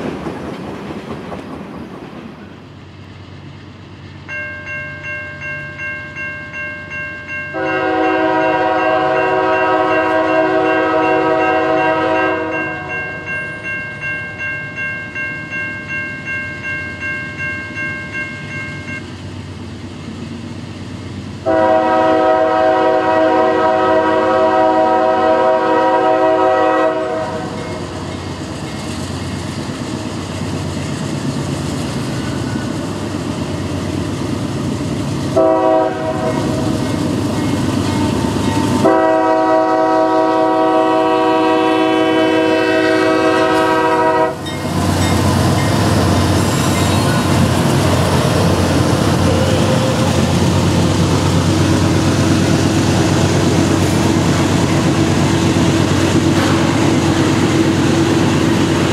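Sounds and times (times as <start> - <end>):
train wheels on rails: 0.0 - 58.9
crossing bell ringing: 4.2 - 19.2, 27.4 - 28.9, 36.0 - 40.4, 42.8 - 55.0
locomotive air horn blasts: 7.5 - 13.0, 21.4 - 27.6, 35.4 - 36.6, 37.9 - 44.4
locomotive engines working hard: 26.4 - 41.2, 43.0 - 58.9.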